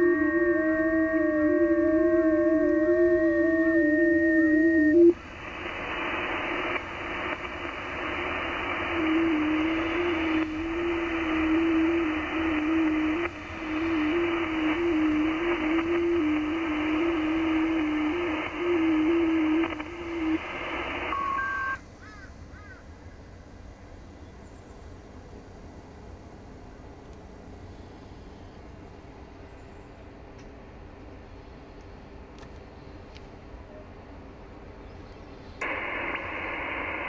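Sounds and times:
warbling digital radio tone: 0.0 - 21.8
radio band noise hiss: 0.0 - 37.0
radio click: 4.2 - 21.8, 35.6 - 37.0.

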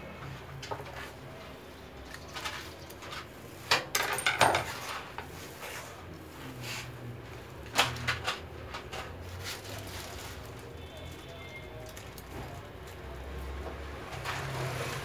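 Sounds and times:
metal parts clicking and clattering: 2.1 - 5.0.

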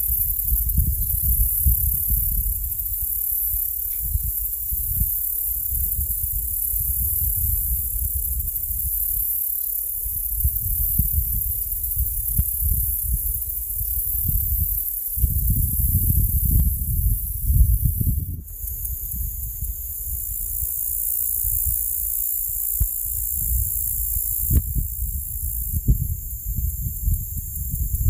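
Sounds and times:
wind buffeting microphone: 0.0 - 9.0, 10.0 - 28.0.

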